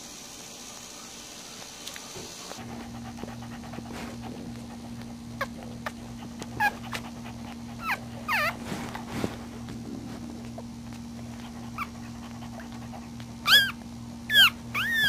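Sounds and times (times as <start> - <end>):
steady low hum: 0.0 - 15.0
puppies squeaking: 5.4 - 7.1, 7.7 - 8.6, 13.4 - 15.0.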